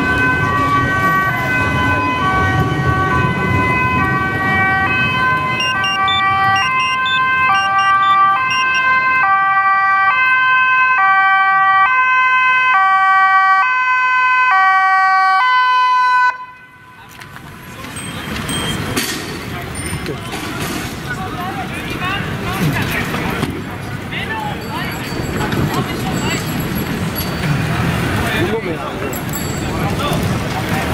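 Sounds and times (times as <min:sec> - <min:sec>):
two-tone police siren: 0:00.0 - 0:17.0
crowd and traffic rumble: 0:00.0 - 0:30.9.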